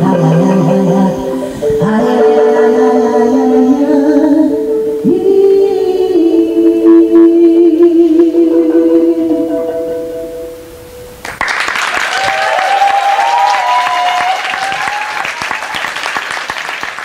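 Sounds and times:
a cappella held chord: 0:00.0 - 0:11.1
audience applause: 0:11.2 - 0:17.0
long rising whoop: 0:12.1 - 0:15.8.

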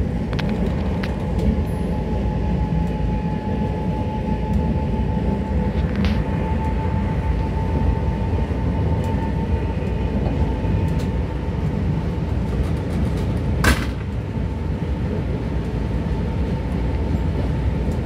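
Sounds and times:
high whine: 0:00.0 - 0:18.0
train rumbling on track: 0:00.0 - 0:18.0.

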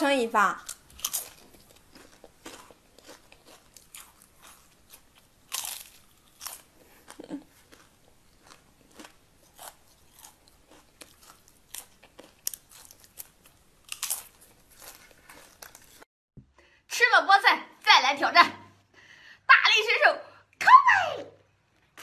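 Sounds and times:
crunching fried potato chips: 0:00.6 - 0:16.0.

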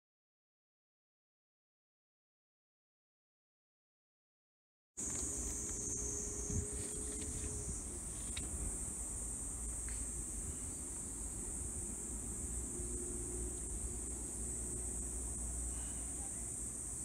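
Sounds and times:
high-pitched insect chorus: 0:05.0 - 0:17.0.

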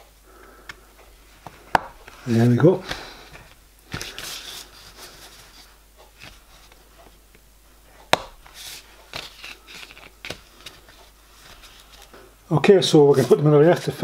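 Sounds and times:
faint rubbing: 0:01.2 - 0:07.3, 0:08.4 - 0:12.3.

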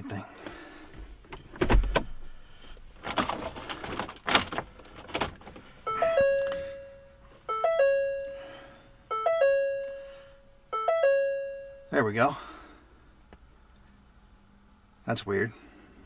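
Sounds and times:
keys jangling on key ring: 0:03.1 - 0:05.6
dashboard warning chime: 0:05.8 - 0:12.3.

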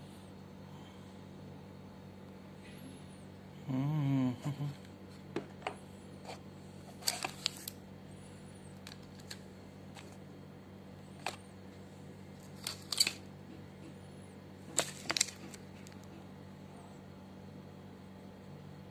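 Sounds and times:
steady low hum: 0:00.0 - 0:18.9
packaging clicks and rustles: 0:06.3 - 0:07.8, 0:08.8 - 0:10.2, 0:11.2 - 0:11.4, 0:12.4 - 0:13.3, 0:14.7 - 0:16.1.

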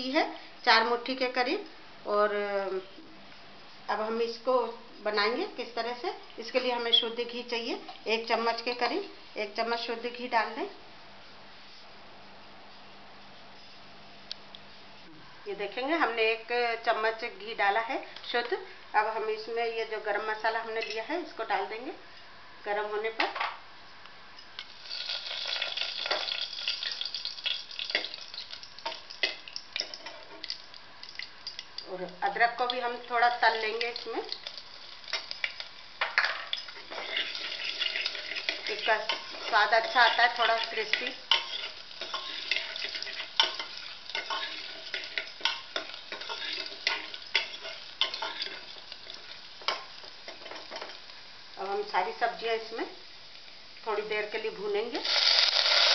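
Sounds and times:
spices sizzling and crackling: 0:02.2 - 0:10.8, 0:15.7 - 0:21.9, 0:24.4 - 0:55.9
metal spoon clinking against pot: 0:36.5 - 0:51.0.

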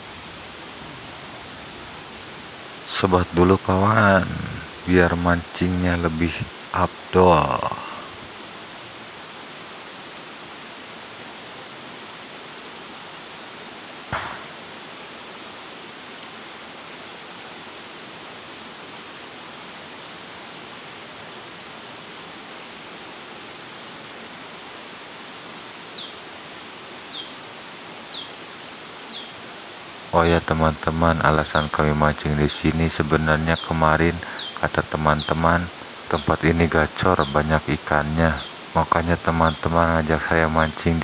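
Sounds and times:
forest stream hiss: 0:00.0 - 0:41.0
single sharp sound: 0:14.1 - 0:14.6
bird chirping: 0:25.9 - 0:26.2, 0:27.1 - 0:27.4, 0:28.1 - 0:28.3, 0:29.1 - 0:29.4, 0:30.2 - 0:41.0.

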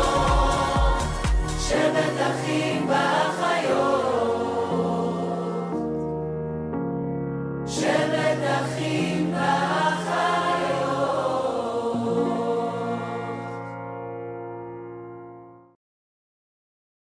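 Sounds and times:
choir singing: 0:00.0 - 0:06.0, 0:07.7 - 0:13.8.

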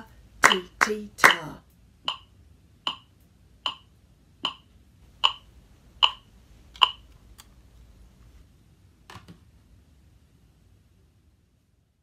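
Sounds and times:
metronome clicking: 0:02.0 - 0:02.3, 0:02.9 - 0:07.0.

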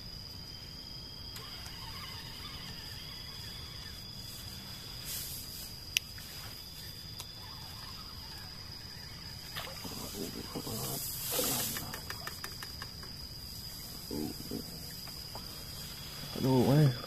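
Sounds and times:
night insects droning: 0:00.0 - 0:17.0.

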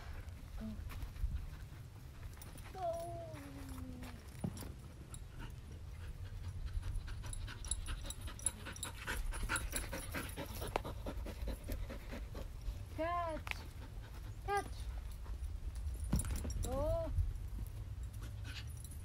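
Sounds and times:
dog panting: 0:03.6 - 0:16.0.

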